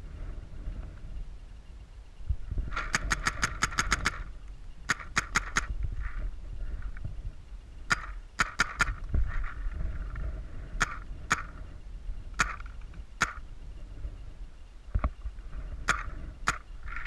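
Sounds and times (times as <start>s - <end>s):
paintball markers firing: 2.7s - 4.3s, 4.9s - 5.7s, 7.9s - 9.0s, 10.8s - 11.6s, 12.4s - 13.4s, 15.9s - 16.7s.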